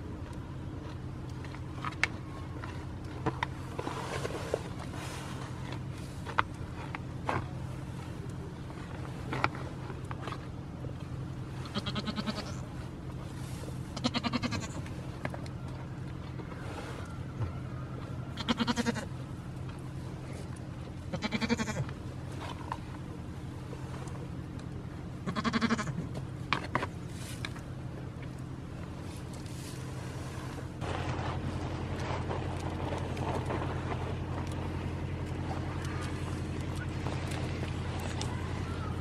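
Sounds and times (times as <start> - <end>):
steady low hum: 0.0 - 39.0
goats bleating: 11.6 - 12.6, 14.0 - 14.8, 18.4 - 19.1, 21.1 - 21.9, 25.2 - 26.0.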